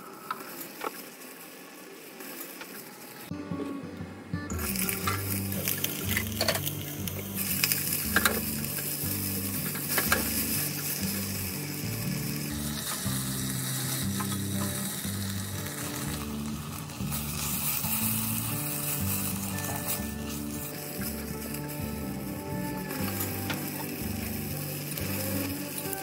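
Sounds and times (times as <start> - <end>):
soft background music: 3.3 - 26.0
onions sizzling in hot oil: 4.5 - 26.0.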